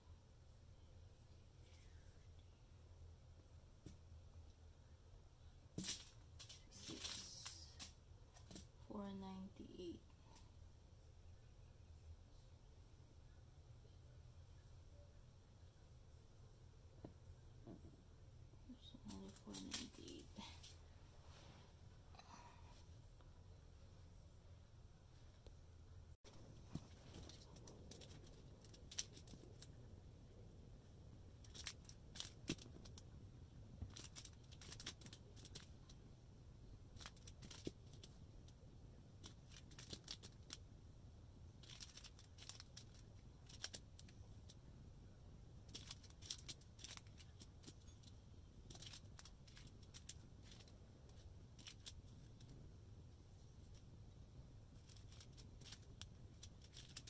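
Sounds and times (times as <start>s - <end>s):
plastic bags crinkling: 26.6s - 29.7s, 33.9s - 35.7s, 39.2s - 40.6s, 41.6s - 44.1s, 54.8s - 57.0s.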